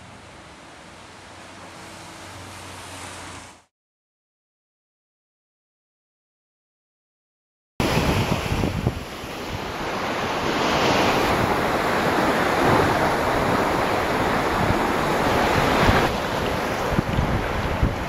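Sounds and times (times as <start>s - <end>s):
sea surf washing on beach: 0.0s - 3.6s, 7.8s - 18.0s
wind buffeting microphone: 7.8s - 18.0s.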